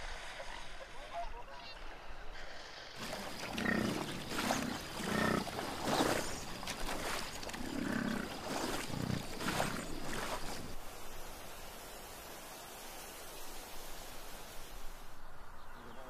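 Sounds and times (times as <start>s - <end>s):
bison grunting and bellowing: 3.0s - 10.8s.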